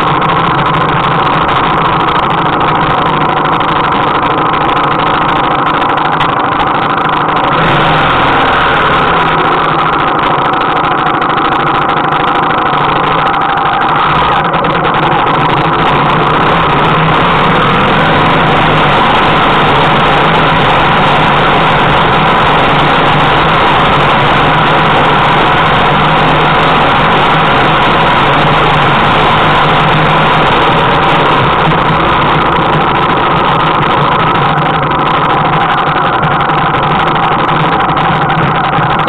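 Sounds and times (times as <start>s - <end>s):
motorcycle engine running: 0.0s - 39.0s.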